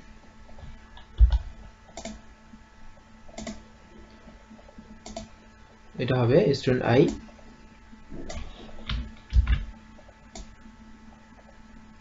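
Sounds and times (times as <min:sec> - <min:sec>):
keyboard and mouse clicks: 0:01.0 - 0:02.2, 0:03.3 - 0:03.6, 0:05.0 - 0:05.3, 0:08.2 - 0:10.5.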